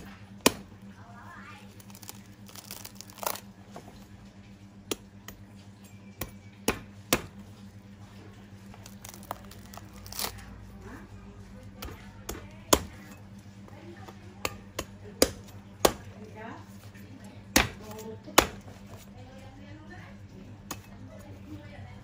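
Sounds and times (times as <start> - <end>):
cleaver chopping fruit husk: 0.0 - 1.0, 1.7 - 3.5, 4.9 - 5.6, 6.2 - 7.6, 8.6 - 10.5, 11.7 - 13.2, 14.0 - 16.3, 17.4 - 19.1.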